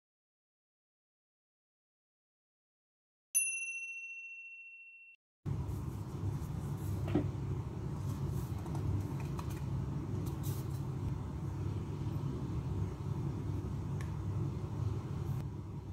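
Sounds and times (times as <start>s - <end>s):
bright chime ding: 3.4s - 5.2s
low room hum: 5.5s - 15.9s.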